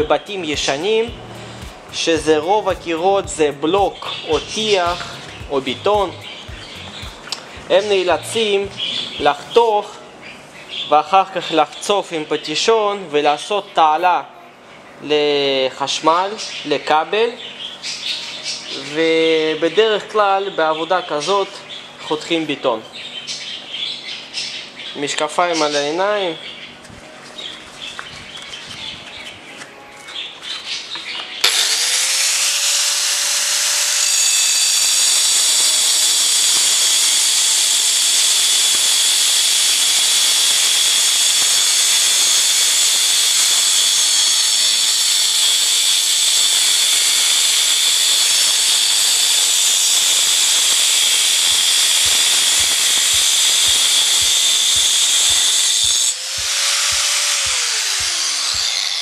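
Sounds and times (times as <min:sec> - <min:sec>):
angle grinder cutting concrete: 0:00.0 - 0:09.8, 0:31.4 - 0:59.0.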